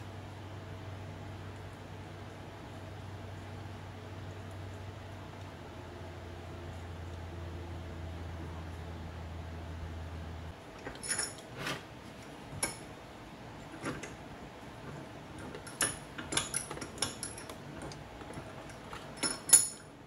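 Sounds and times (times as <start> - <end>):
metal tools clinking: 10.8 - 11.5, 15.4 - 20.0.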